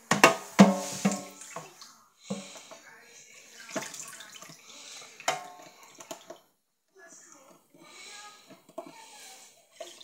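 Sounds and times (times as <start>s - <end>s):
water splashing in metal sink: 0.1s - 2.6s, 3.5s - 6.5s.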